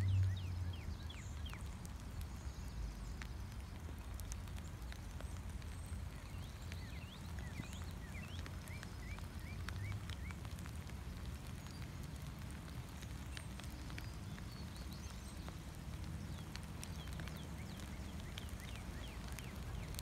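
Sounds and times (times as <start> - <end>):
steady low rumble: 0.0 - 3.2
bird chirping: 0.0 - 3.3
light rain drops ticking: 0.0 - 20.0.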